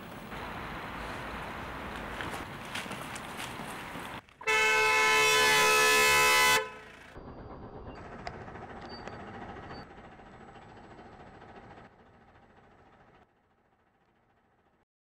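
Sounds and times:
faint street ambience: 0.0 - 14.8
car horn blast: 4.4 - 7.0.

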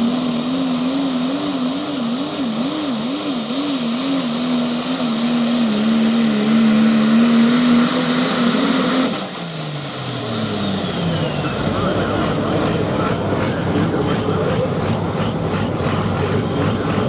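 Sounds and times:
diesel truck engine at full power: 0.0 - 17.0.

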